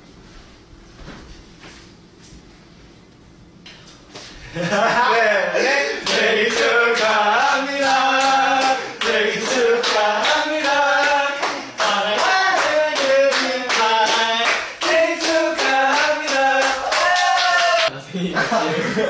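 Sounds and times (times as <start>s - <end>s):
young men singing together: 4.7s - 17.9s
rhythmic clapping: 6.0s - 17.9s.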